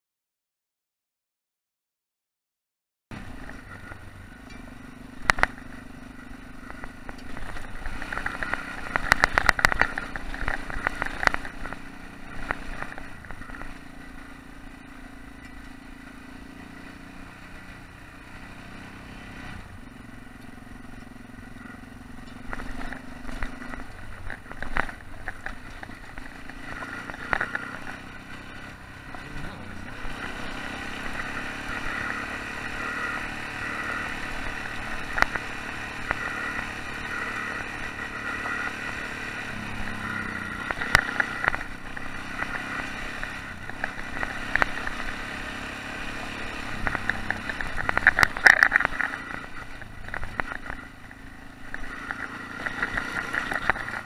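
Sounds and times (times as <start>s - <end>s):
motorcycle engine revving: 3.1s - 54.0s
motorcycle knocking and clattering: 3.3s - 14.1s, 20.3s - 28.2s, 34.4s - 36.6s, 39.8s - 45.3s, 46.6s - 54.0s.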